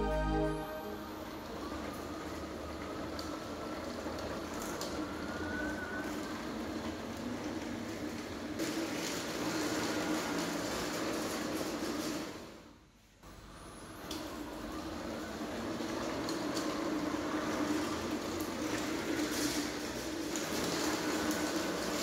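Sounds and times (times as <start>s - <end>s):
music: 0.0s - 1.6s.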